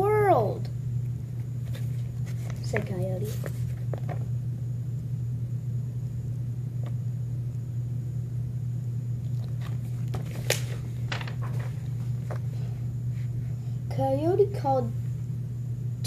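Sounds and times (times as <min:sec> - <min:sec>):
steady low hum: 0:00.0 - 0:16.0
book pages rustling and flipping: 0:01.4 - 0:04.3, 0:09.3 - 0:13.3.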